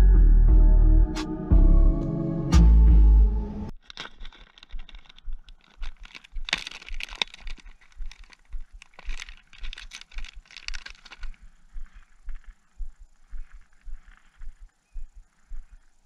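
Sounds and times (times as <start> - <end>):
plastic bag crinkling: 3.7 - 12.0.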